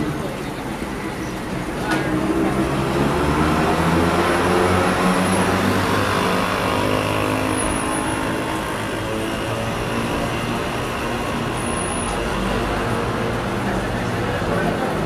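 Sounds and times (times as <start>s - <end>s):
motor engine droning: 2.2s - 14.0s.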